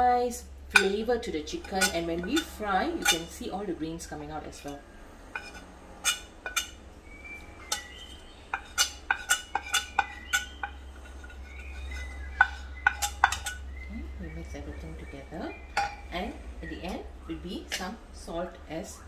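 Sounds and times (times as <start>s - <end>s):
metal spoon tapping ceramic: 1.6s - 3.3s, 12.4s - 13.6s.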